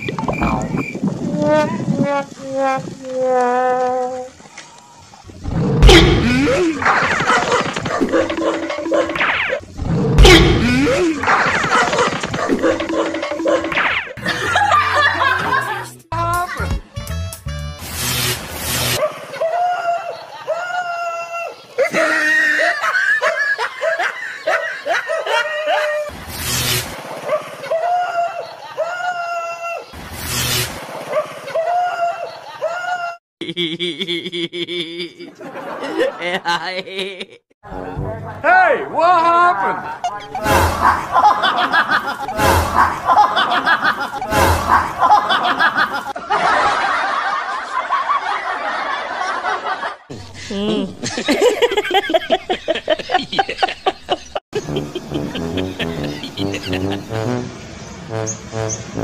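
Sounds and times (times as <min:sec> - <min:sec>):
crowd laughing: 0:06.2 - 0:09.2, 0:10.6 - 0:16.6, 0:19.0 - 0:26.1, 0:27.2 - 0:29.6, 0:31.0 - 0:37.5, 0:39.4 - 0:59.0.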